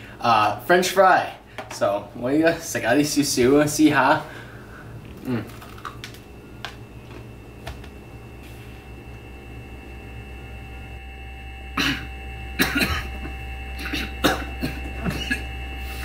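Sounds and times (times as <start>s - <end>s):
steady low hum: 0.0s - 16.0s
man coughing: 11.8s - 15.5s.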